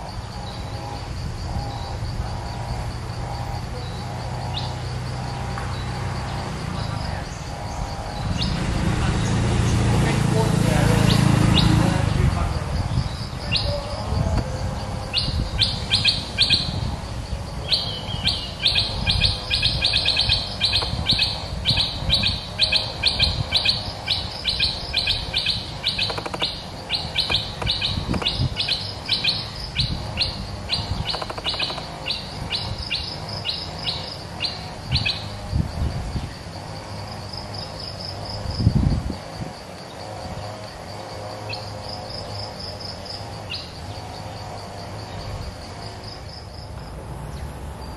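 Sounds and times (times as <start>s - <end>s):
faint insect buzz: 0.0s - 47.9s
bird singing bright repeated notes: 17.7s - 35.4s.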